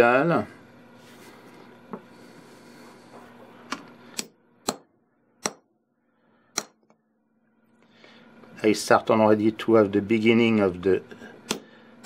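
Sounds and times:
hammer tapping metal punch: 0:04.2 - 0:05.7, 0:06.5 - 0:07.0.

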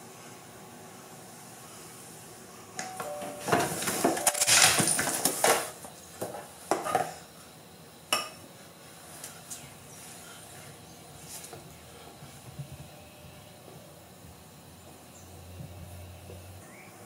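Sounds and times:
hard objects clattering and clinking: 0:02.8 - 0:07.1.

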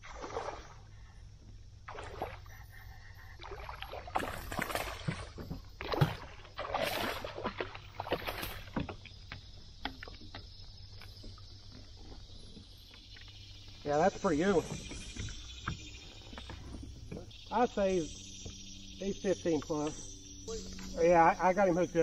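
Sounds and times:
fish splashing in water: 0:00.0 - 0:00.8, 0:01.9 - 0:12.2
clicks and knocks on kayak: 0:08.7 - 0:12.7.

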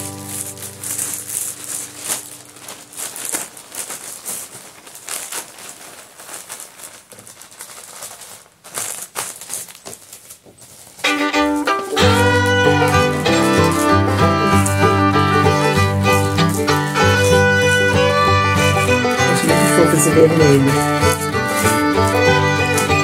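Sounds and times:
plastic packaging crinkling: 0:00.0 - 0:23.0
background music with fiddle: 0:11.0 - 0:23.0.

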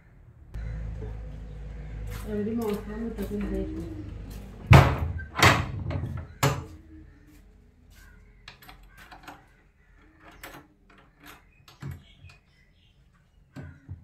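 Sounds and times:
wooden door clunks: 0:04.7 - 0:06.7
metal bolts clicking and rattling: 0:08.5 - 0:12.5.

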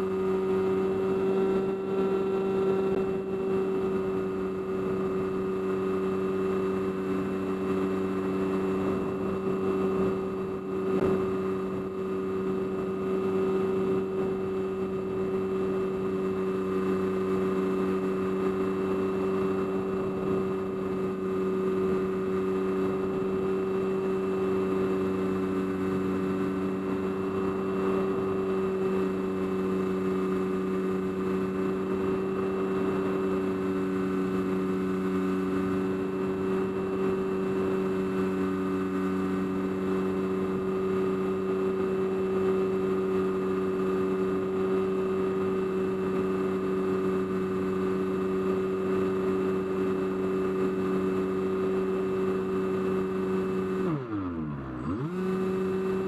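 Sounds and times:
electric motor and propeller drone: 0:00.0 - 0:56.0.

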